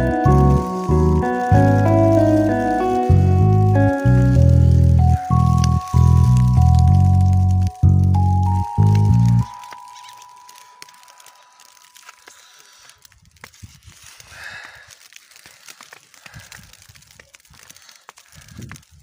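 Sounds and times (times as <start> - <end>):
snow pattering on leaves: 0.0 - 19.0
wind rumble on microphone: 18.4 - 19.0.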